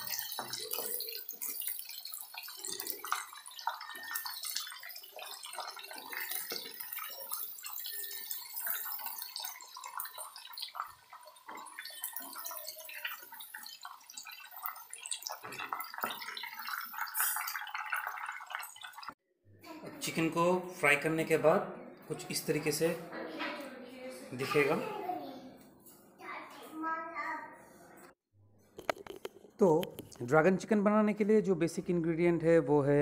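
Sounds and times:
chicken deep-frying in oil: 0.0s - 19.2s
wooden spatula knocking and scraping: 28.7s - 30.2s.

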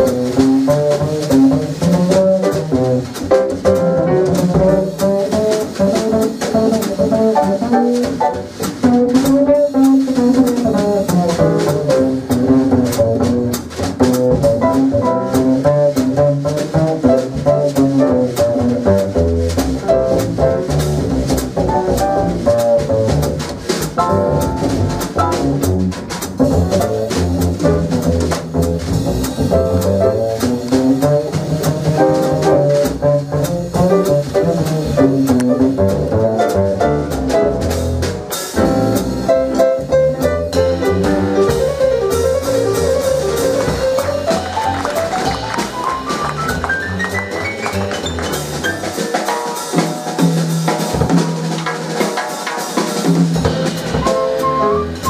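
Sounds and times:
upright double bass: 0.0s - 51.9s, 53.0s - 55.0s
drum kit with cymbals: 0.0s - 55.0s
melodic lead line: 54.0s - 55.0s.

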